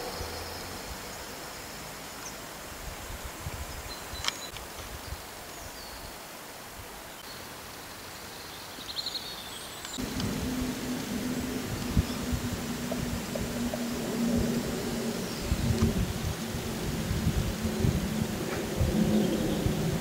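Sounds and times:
even outdoor hiss: 0.0s - 20.0s
steady low hum: 10.0s - 20.0s.

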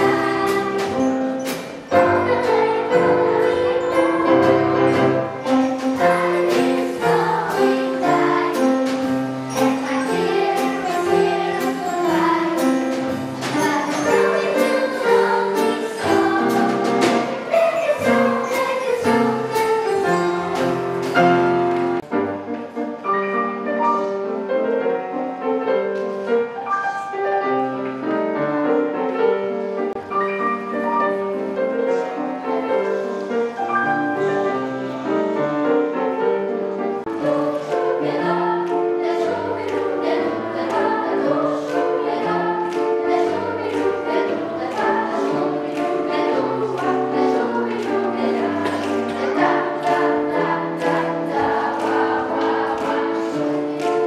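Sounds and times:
children's choir singing: 0.0s - 54.0s
piano accompaniment: 0.0s - 54.0s.

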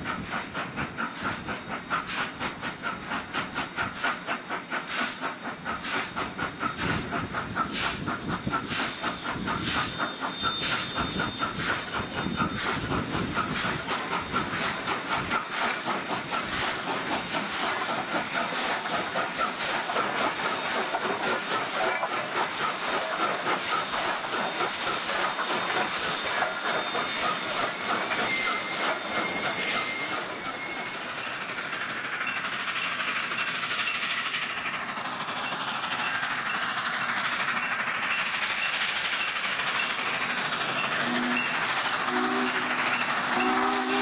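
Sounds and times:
steam hiss: 0.0s - 44.0s
steam locomotive exhaust beats: 0.0s - 44.0s
train wheel noise: 0.0s - 44.0s
multi-tone steam whistle: 8.8s - 12.8s, 41.0s - 44.0s.

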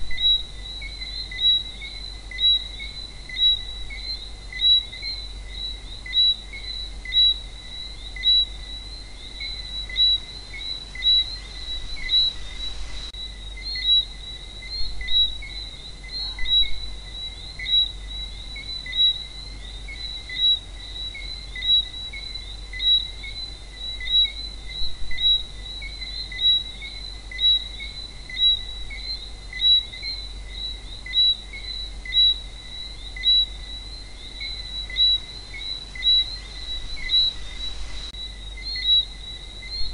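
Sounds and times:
frogs chirping: 0.0s - 39.9s.

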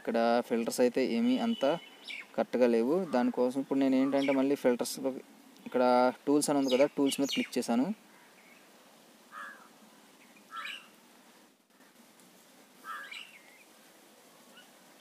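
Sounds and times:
low background hiss: 0.0s - 15.0s
faint bird chirps: 1.2s - 2.4s, 9.3s - 11.0s, 12.8s - 13.7s.

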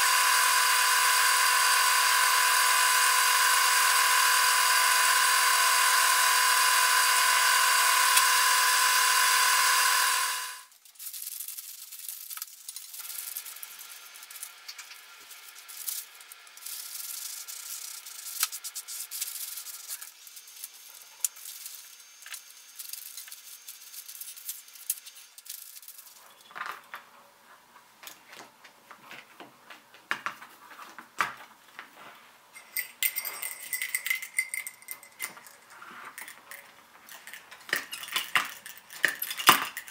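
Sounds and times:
wood lathe whine: 0.0s - 10.7s
small bells and metal clinking: 32.5s - 39.9s.

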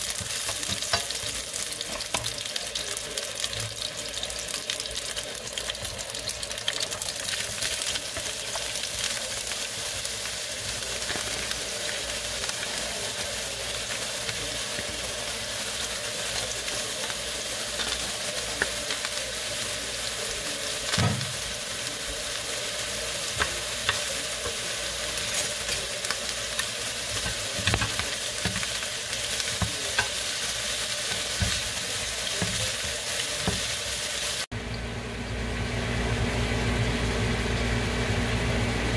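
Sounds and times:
food sizzling in oil: 0.0s - 38.9s.

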